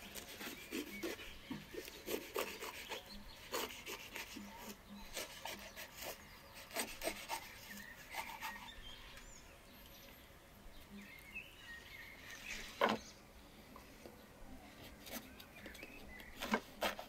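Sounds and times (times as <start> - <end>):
knife sawing crusty bread: 0.0 - 8.8, 14.9 - 17.0.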